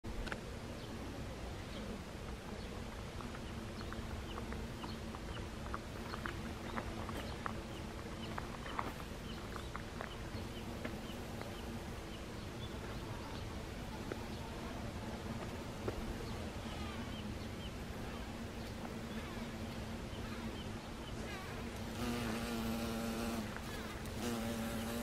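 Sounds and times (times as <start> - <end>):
bees humming: 16.0 - 25.0.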